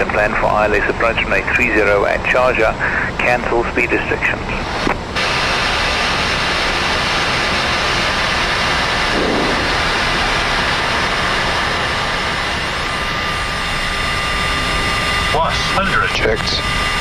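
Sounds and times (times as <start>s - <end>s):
jet engine and airflow rush: 0.0s - 17.0s
thin steady whine: 0.0s - 17.0s.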